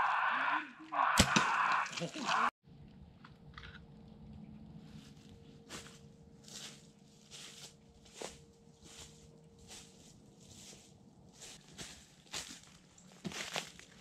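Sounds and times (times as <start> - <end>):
footsteps in dry leaves: 4.8 - 14.0.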